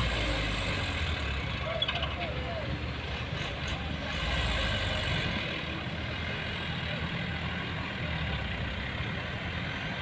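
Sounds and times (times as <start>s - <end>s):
dump truck diesel engine rumble: 0.0s - 10.0s.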